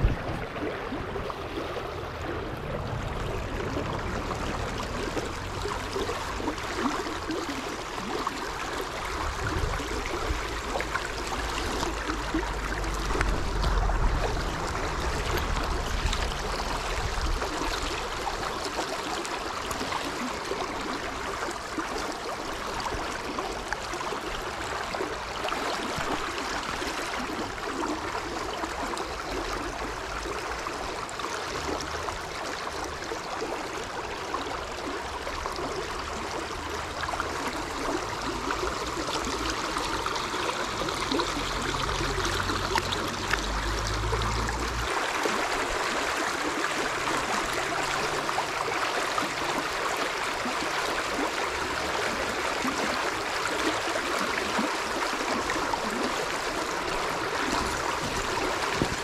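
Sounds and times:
stream water flowing: 0.0 - 59.0
low rumble: 11.4 - 17.6.

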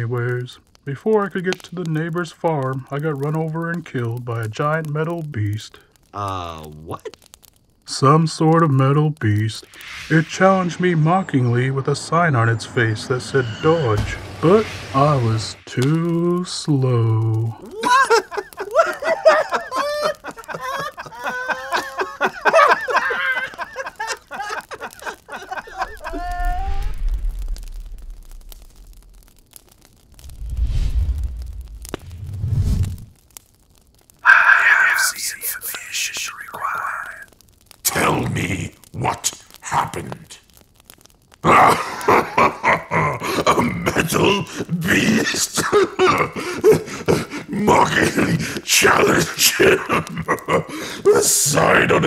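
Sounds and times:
deep low rumble: 9.6 - 15.9, 26.0 - 29.5, 30.1 - 33.2
cartoon voices laughing: 17.6 - 26.8, 41.5 - 48.4, 49.5 - 51.5.

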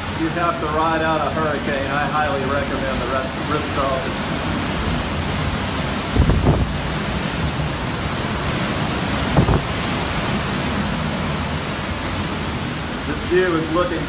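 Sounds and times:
strong wind and driving rain: 0.0 - 14.0.

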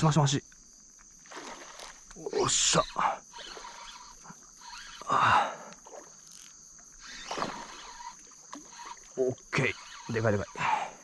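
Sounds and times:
high insect trill: 0.0 - 11.0
boat noises: 0.2 - 11.0
fish splashing in water: 1.2 - 2.1, 7.0 - 10.1.

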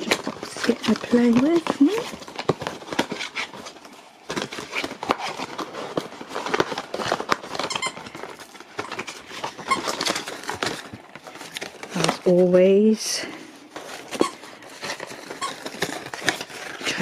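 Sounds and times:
dog chewing: 0.1 - 11.2
squeaky toy squeaking: 7.6 - 8.1.

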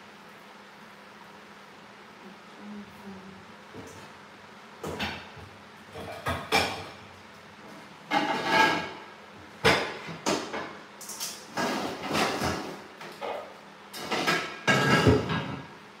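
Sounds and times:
pots and lids clattering: 5.9 - 7.0, 8.1 - 15.8.

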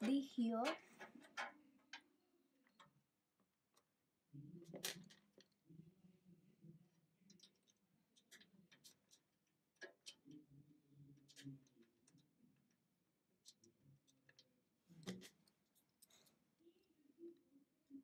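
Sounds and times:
small clicks and taps on metal: 0.0 - 3.0.

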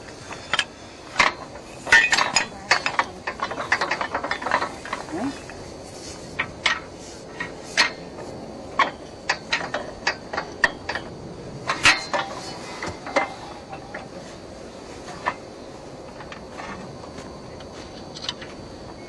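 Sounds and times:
steady background hiss: 0.0 - 19.0
metal tools clinking: 0.3 - 5.6, 11.7 - 14.1.

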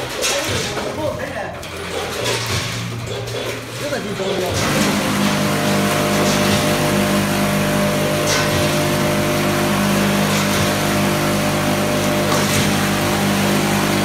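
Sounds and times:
machine motor hum: 1.6 - 14.0.

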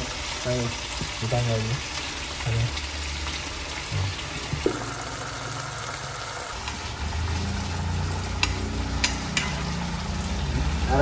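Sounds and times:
meat and sauce sizzling in a pan: 0.0 - 11.0
chopsticks tapping a pan: 8.4 - 9.6.

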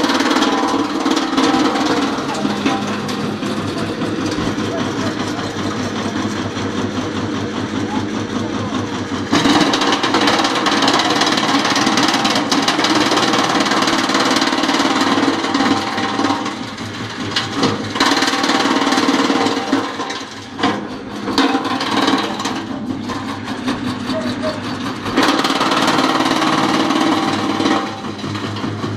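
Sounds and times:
machine hum: 0.0 - 28.9
wood chipper chipping branches: 0.0 - 28.9.

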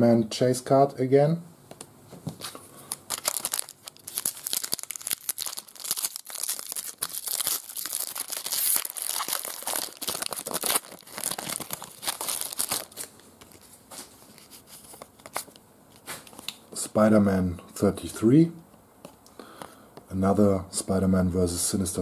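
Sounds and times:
foil wrapper tearing and crinkling: 2.9 - 13.6.

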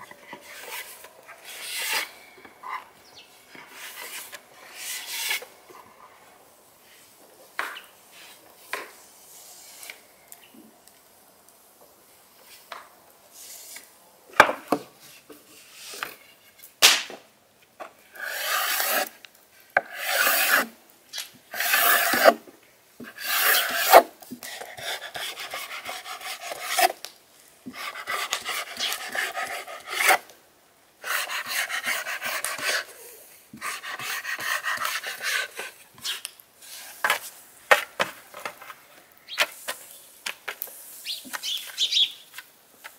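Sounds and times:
rolling pin rasping over dough: 18.2 - 19.1, 19.8 - 20.7, 21.5 - 22.4, 23.1 - 24.1.

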